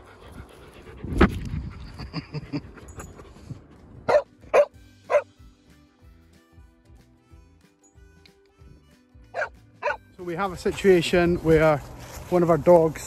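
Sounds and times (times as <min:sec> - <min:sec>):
dog barking: 0:04.1 - 0:05.3, 0:09.4 - 0:10.0.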